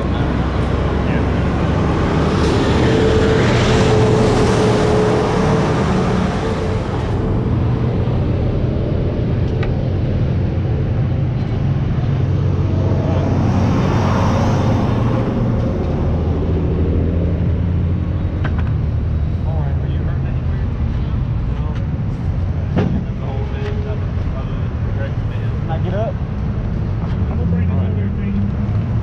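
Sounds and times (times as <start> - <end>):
log truck rumbling past: 0.0 - 29.0
low engine hum: 0.0 - 29.0
vehicle passing: 0.0 - 29.0.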